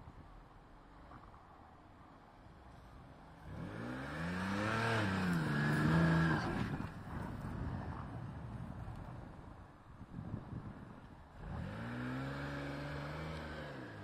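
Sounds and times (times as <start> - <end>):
engine revving hard: 3.4 - 6.8, 11.4 - 14.0.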